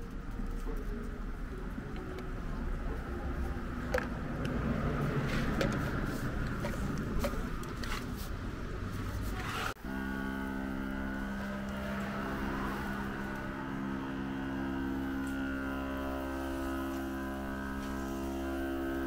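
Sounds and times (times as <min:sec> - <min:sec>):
machine hum: 0:00.2 - 0:19.0.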